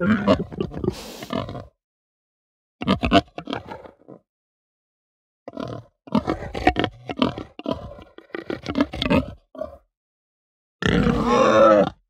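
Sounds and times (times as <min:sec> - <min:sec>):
pig grunting: 0:00.0 - 0:01.7, 0:02.8 - 0:04.2, 0:05.5 - 0:09.8, 0:10.8 - 0:12.0
pig drawn-out pitched call: 0:10.8 - 0:12.0.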